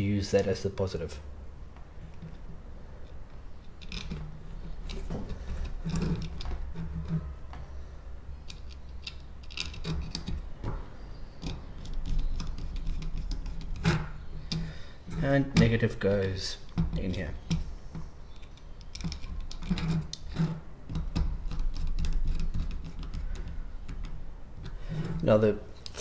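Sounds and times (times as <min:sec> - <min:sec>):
wire clicks and scrapes: 0:02.0 - 0:07.8, 0:08.4 - 0:26.0
screwdriver turning screw: 0:08.4 - 0:10.5, 0:18.3 - 0:24.0.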